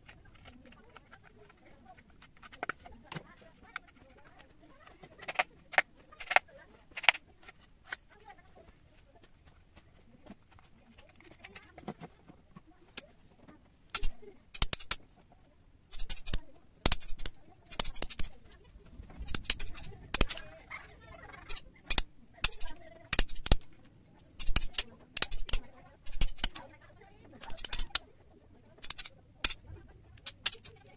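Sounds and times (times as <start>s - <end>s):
hammer tapping steel chisel: 5.2s - 7.2s, 13.9s - 15.1s, 15.9s - 18.5s, 19.2s - 20.5s, 21.4s - 23.8s, 24.4s - 26.7s, 27.3s - 28.0s, 28.8s - 29.6s, 30.2s - 30.8s.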